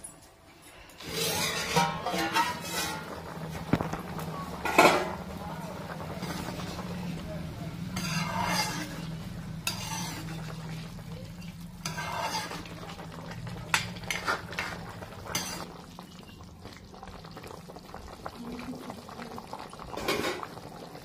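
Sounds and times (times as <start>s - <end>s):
metal ladle scraping pan: 1.0s - 3.9s, 4.6s - 5.2s, 6.1s - 6.9s, 7.9s - 10.8s, 11.8s - 13.1s, 13.7s - 15.7s.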